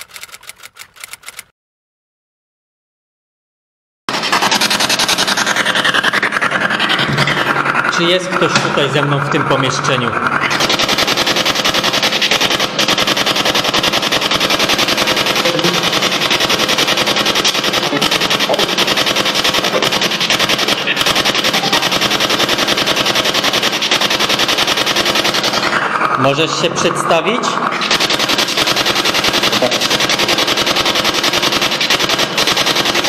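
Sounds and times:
radio static stuttering: 4.1 - 33.0
fragments of broadcast sound: 7.8 - 10.6, 15.4 - 16.0, 25.7 - 27.9.

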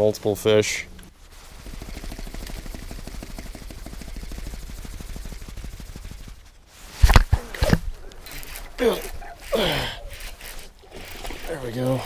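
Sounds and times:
camera bumping and rubbing: 6.8 - 12.0
fishing reel clicking: 8.1 - 12.0.

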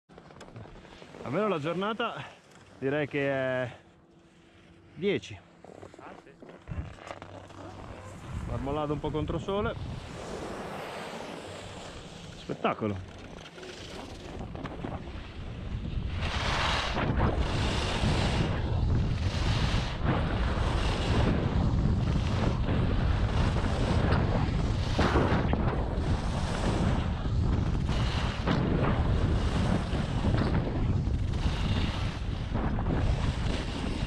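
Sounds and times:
skis scraping on snow: 0.1 - 34.0
wind buffeting microphone: 7.8 - 10.6, 14.3 - 34.0.

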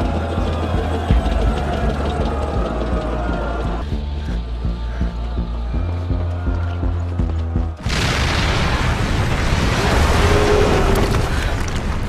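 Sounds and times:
pulsing music: 0.0 - 8.0
massive explosion: 7.8 - 12.0.

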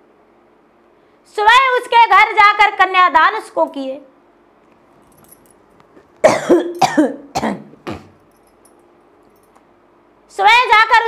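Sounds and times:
person coughing: 6.2 - 8.2.

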